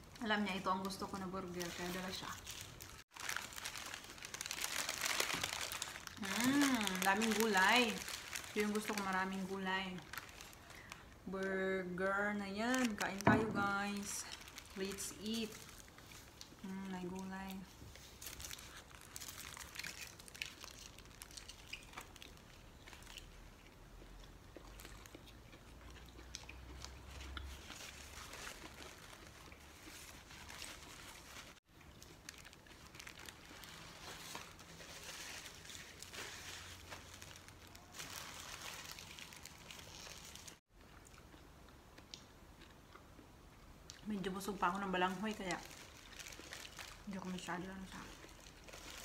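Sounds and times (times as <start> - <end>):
paper wrapper crinkling: 0.8 - 23.5, 26.8 - 40.7, 44.6 - 49.0
burger being chewed: 17.8 - 37.4.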